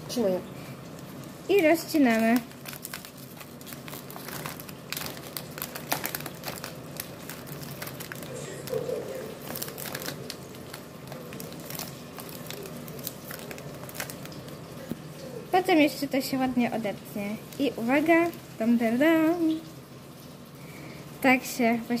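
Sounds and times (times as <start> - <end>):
plastic film crinkling: 0.8 - 19.6.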